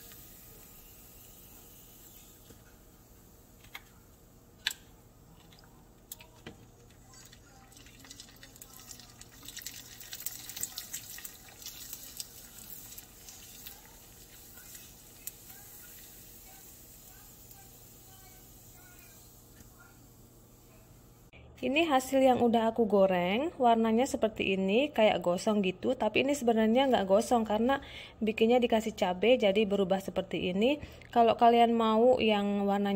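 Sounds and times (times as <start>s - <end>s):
crackers frying in hot oil: 0.0s - 20.8s.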